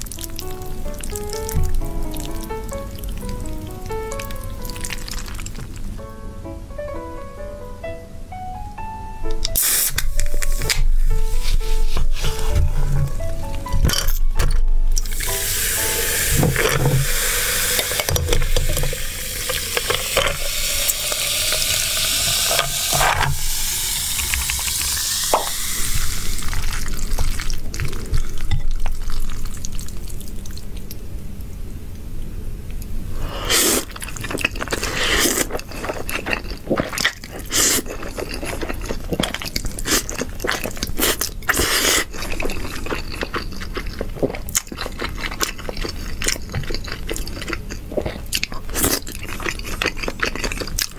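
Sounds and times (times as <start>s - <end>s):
close-up chewing noodles: 0.0s - 5.9s, 26.0s - 31.0s, 33.4s - 50.9s
drink pouring over ice: 15.0s - 27.6s.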